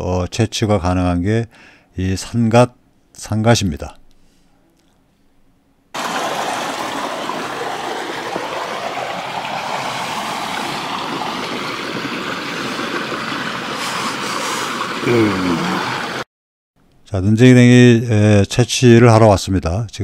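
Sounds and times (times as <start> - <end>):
mountain stream rushing: 6.0 - 16.2.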